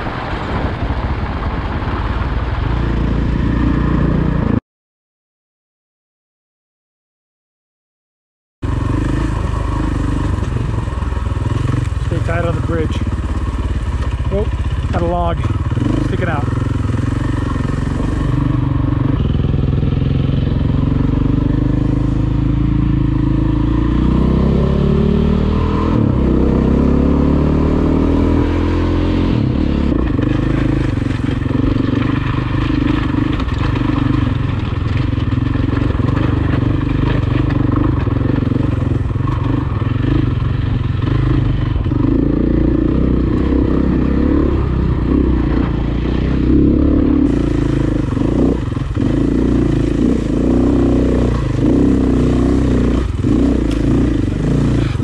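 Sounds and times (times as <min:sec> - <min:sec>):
dirt bike engine: 0:08.6 - 0:55.0.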